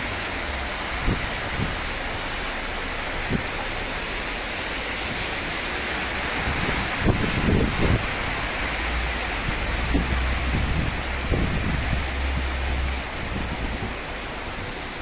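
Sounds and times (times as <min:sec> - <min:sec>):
heavy rain pouring: 0:00.0 - 0:15.0.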